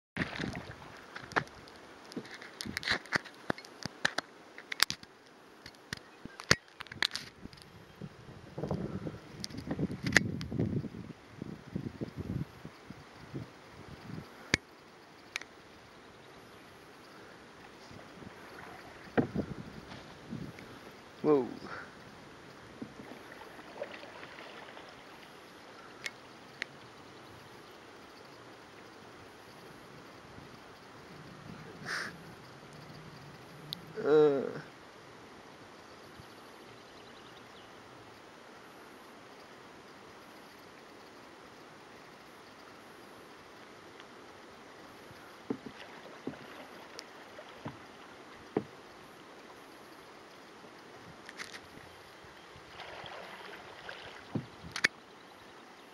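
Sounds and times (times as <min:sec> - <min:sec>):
river water rushing: 0:00.2 - 0:02.1, 0:17.0 - 0:26.2, 0:45.2 - 0:50.9, 0:52.5 - 0:54.4.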